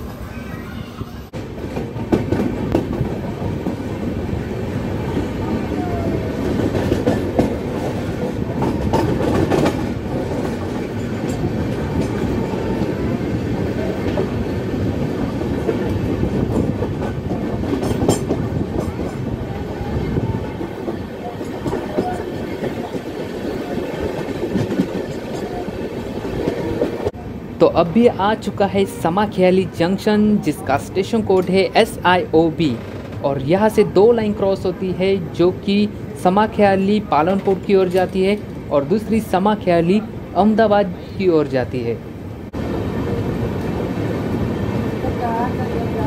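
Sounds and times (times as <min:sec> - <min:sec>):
train wheels clicking over rail joints: 0:06.5 - 0:12.3, 0:15.5 - 0:19.2.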